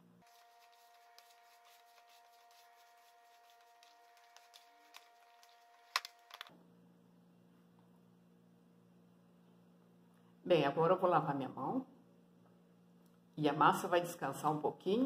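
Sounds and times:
faint steady hum: 0.0s - 15.0s
hands kneading dough in bowl: 0.2s - 5.8s.

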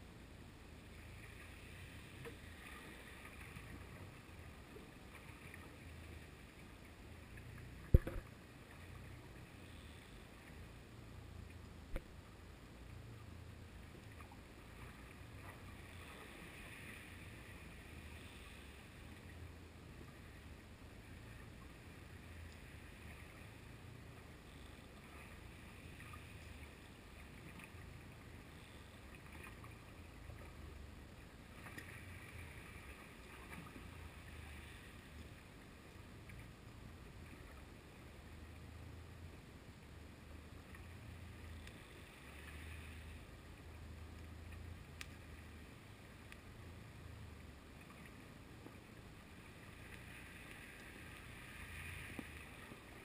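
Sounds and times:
faint hiss: 0.0s - 53.0s
muffled underwater rumble: 0.0s - 53.0s
faint ticks: 0.8s - 53.0s.

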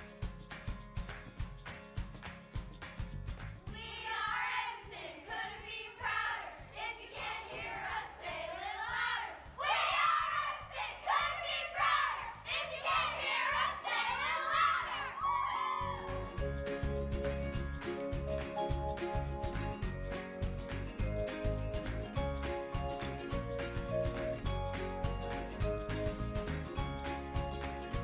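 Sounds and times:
background music: 0.0s - 28.0s
girls singing a cheer: 3.7s - 16.1s.

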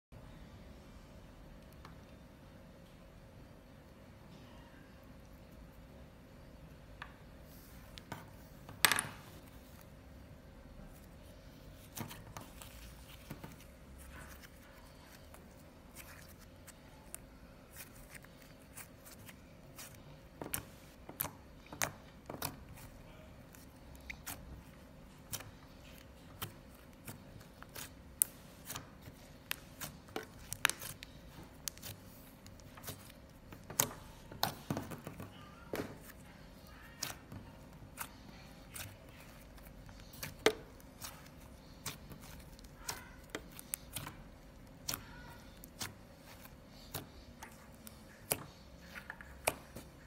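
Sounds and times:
slime clicking and popping: 27.6s - 35.2s.

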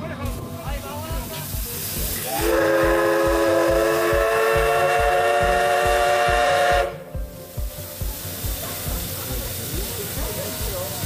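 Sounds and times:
steam whistle blast: 2.2s - 7.2s.

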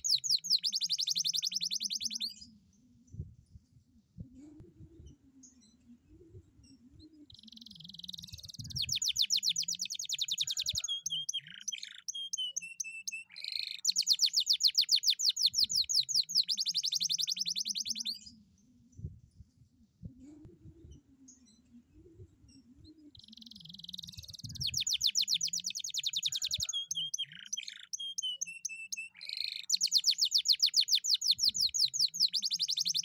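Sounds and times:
canary singing: 0.0s - 2.4s, 7.3s - 18.3s, 23.1s - 33.0s.

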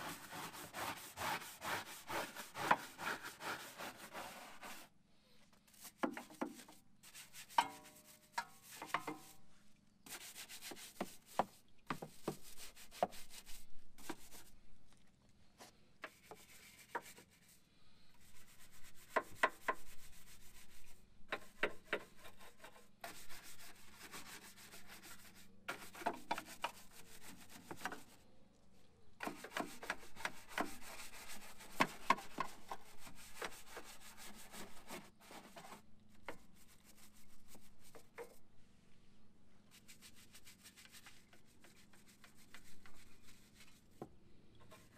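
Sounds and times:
brush scrubbing a surface: 0.0s - 5.0s, 5.6s - 14.5s, 16.1s - 28.2s, 29.2s - 38.4s, 39.7s - 44.0s.

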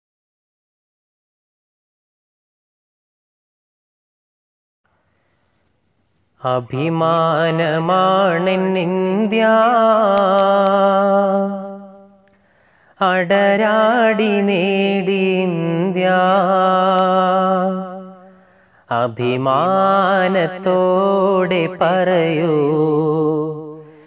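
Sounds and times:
person singing wordless melody: 6.4s - 24.0s.

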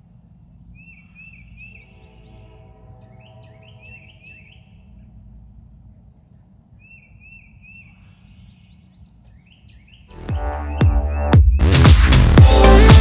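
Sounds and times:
high insect drone: 0.0s - 10.1s
faint hum: 0.0s - 10.6s
birds calling: 0.6s - 11.8s
arched bird whistle: 0.8s - 4.8s.

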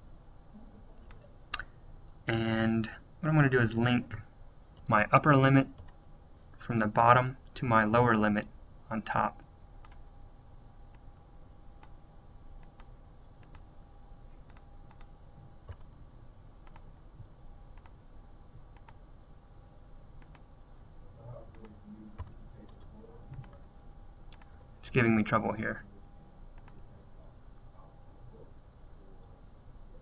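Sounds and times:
faint steady hum: 0.0s - 30.0s
computer mouse clicking: 1.0s - 1.7s, 9.8s - 10.0s, 12.6s - 13.7s, 14.4s - 15.9s, 16.6s - 16.9s, 17.8s - 18.0s, 18.8s - 19.0s, 20.2s - 20.5s, 21.5s - 23.6s, 24.3s - 24.6s, 26.6s - 26.8s.

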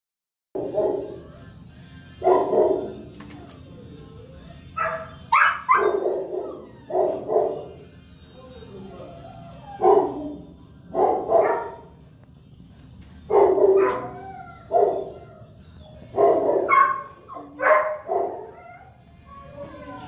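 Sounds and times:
dog barking: 0.6s - 1.2s, 2.2s - 3.1s, 4.8s - 7.8s, 9.8s - 11.9s, 13.3s - 15.3s, 16.1s - 18.9s.

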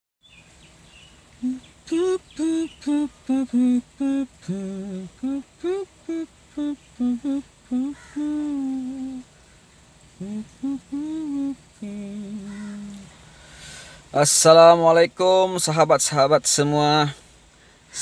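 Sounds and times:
person humming: 1.4s - 9.3s, 10.1s - 13.2s.

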